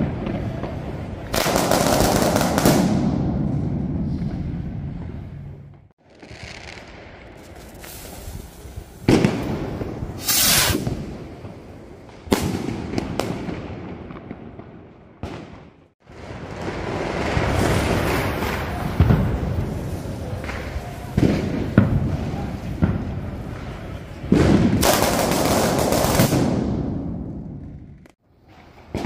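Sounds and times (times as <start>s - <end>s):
fireworks bangs: 0.0s - 29.0s
fireworks hissing and crackling: 6.0s - 14.4s, 16.1s - 26.7s.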